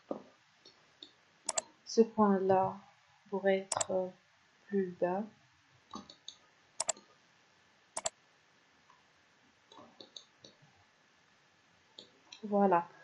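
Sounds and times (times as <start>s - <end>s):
faint small ticks: 5.9s - 7.1s, 8.0s - 8.2s.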